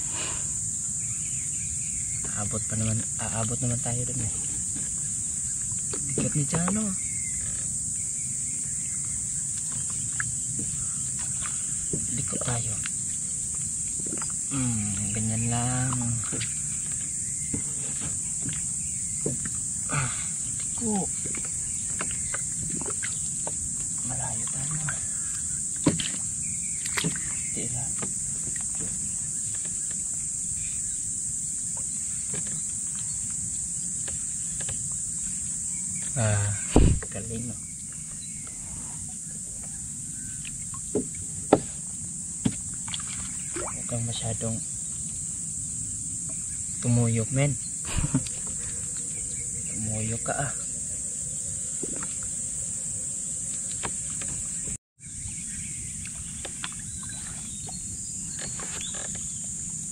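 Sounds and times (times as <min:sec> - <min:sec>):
insects chorus: 0:00.0 - 0:59.9
water sloshing: 0:08.9 - 0:30.4, 0:42.3 - 0:44.5, 0:51.6 - 0:52.6, 0:55.9 - 0:59.8
boat knocking: 0:15.2 - 0:19.6, 0:36.7 - 0:37.4.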